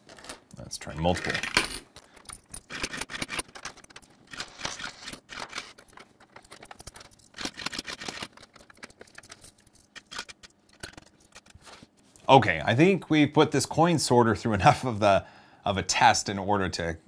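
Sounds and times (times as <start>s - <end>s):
coins clattering in plastic sorter: 1.1s - 11.6s.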